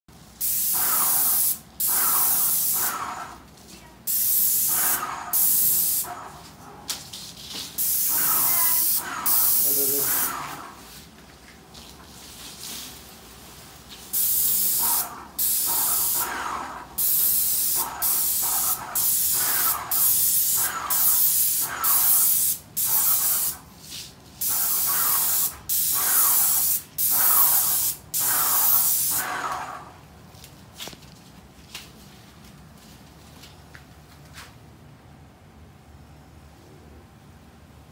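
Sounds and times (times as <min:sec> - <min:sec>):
paint sprayer hissing bursts: 0:00.4 - 0:03.1, 0:04.1 - 0:06.1, 0:07.8 - 0:10.8, 0:14.1 - 0:23.6, 0:24.4 - 0:29.9.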